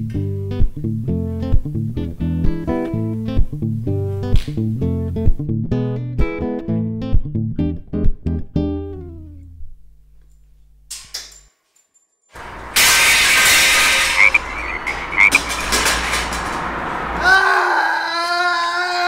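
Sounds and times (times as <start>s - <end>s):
acoustic guitar music: 0.0s - 9.7s
short chirping calls: 13.8s - 15.4s.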